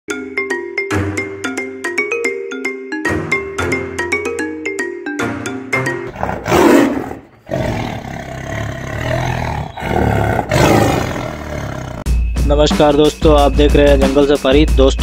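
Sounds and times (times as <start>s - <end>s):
tiger roaring: 6.1s - 12.1s.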